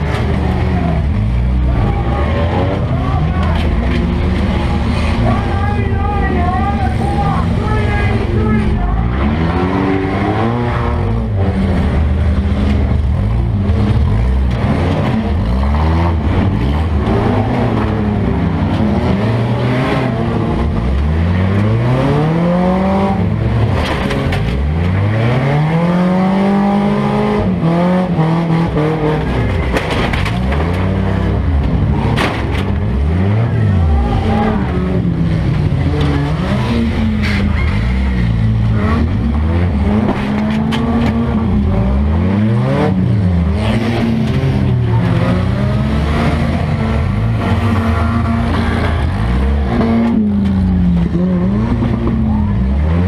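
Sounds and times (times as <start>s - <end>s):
car engine revving: 0.0s - 53.0s.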